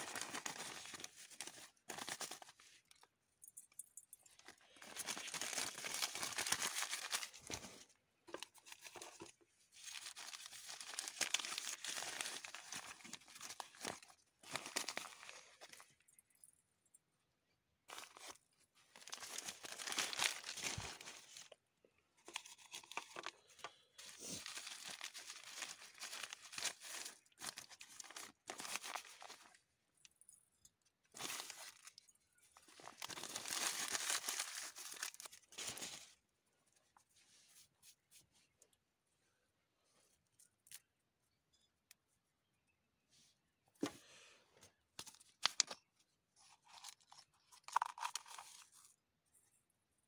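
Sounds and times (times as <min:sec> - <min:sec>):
newspaper rustling and crinkling: 0:00.0 - 0:02.6, 0:04.4 - 0:15.8, 0:17.9 - 0:21.6, 0:24.0 - 0:29.5, 0:32.6 - 0:36.2.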